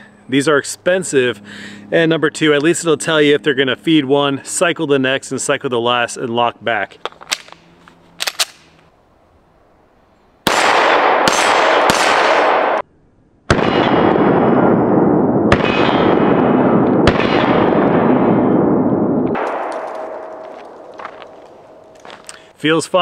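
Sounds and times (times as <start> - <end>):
pistol gunshots echoing: 10.4 - 12.8, 13.5 - 18.8, 19.4 - 22.0.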